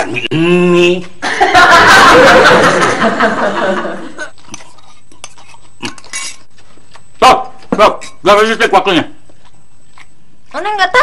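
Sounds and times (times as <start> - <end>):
studio audience laughter: 1.2 - 4.2
eating noises: 4.2 - 8.2
fork clinking on bowl: 4.5 - 6.5.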